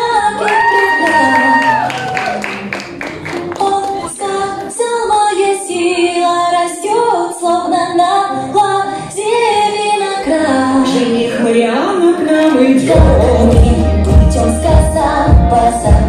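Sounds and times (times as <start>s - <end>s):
woman singing: 0.0s - 1.9s, 3.3s - 16.0s
music: 0.0s - 16.0s.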